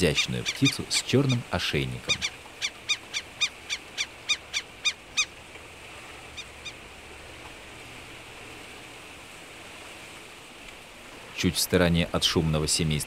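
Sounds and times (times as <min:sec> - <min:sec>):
gull calling: 0:00.0 - 0:05.4, 0:06.3 - 0:06.8.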